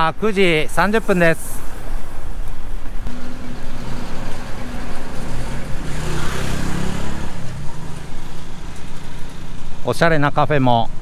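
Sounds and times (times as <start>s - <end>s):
street traffic engines: 0.0s - 11.0s
vehicle passing close by: 3.0s - 9.8s.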